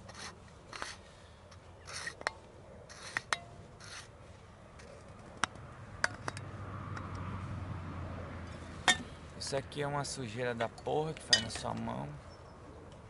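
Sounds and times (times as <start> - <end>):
gloved hands rubbing: 0.0 - 1.1, 1.8 - 2.2, 2.9 - 4.2.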